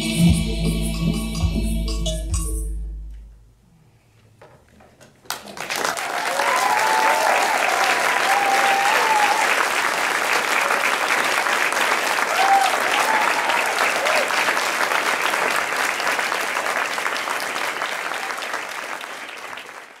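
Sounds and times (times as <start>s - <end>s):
audience applauding: 5.2s - 20.0s
crowd calling out: 6.1s - 9.6s, 12.2s - 14.4s.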